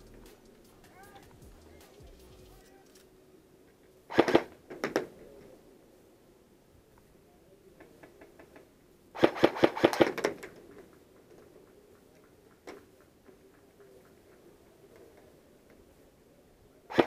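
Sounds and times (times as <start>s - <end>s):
airsoft gun cracks: 4.1s - 5.1s, 9.2s - 10.5s.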